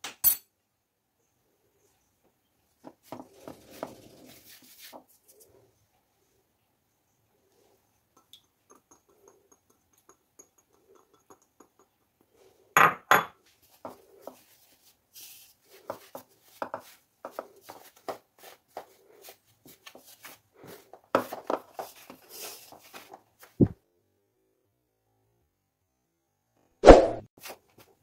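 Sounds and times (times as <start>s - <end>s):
hand rustling in flour: 3.0s - 5.6s, 13.5s - 23.7s.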